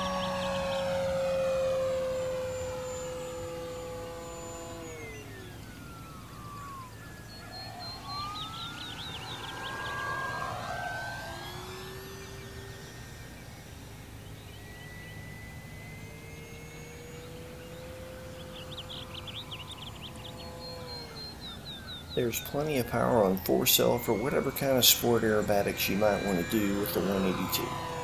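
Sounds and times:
model plane motor whining: 0.0s - 28.0s.

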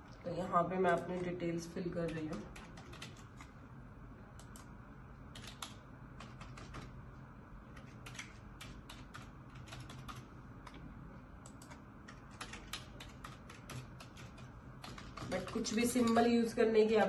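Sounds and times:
keyboard typing: 2.0s - 3.5s, 5.3s - 7.0s, 7.7s - 10.8s, 11.4s - 16.3s.

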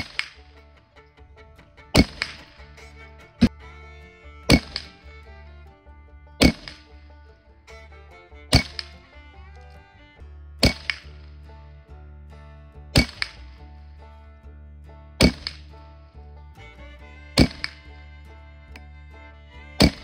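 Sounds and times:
background music: 0.0s - 20.0s
rifle shots: 15.2s - 15.6s.

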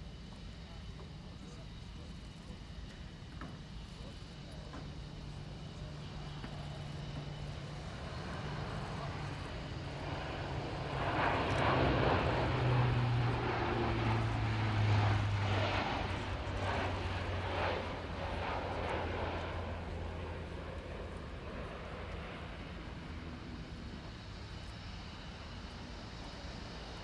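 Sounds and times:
turboprop aircraft flying overhead: 0.0s - 27.0s.

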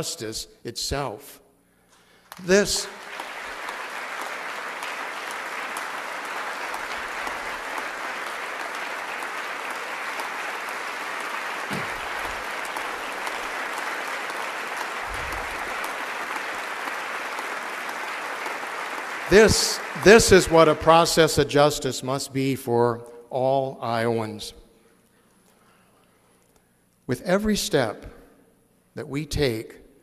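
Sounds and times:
audience applause: 2.3s - 21.3s.

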